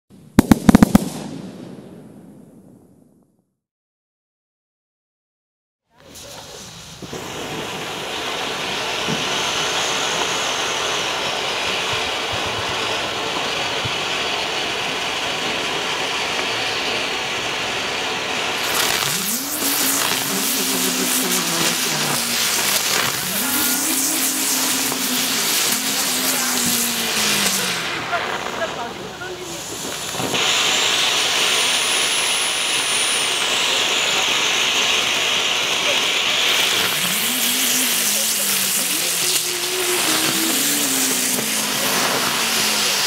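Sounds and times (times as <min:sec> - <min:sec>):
firework fountain hissing: 0:00.2 - 0:02.3, 0:05.9 - 0:43.0.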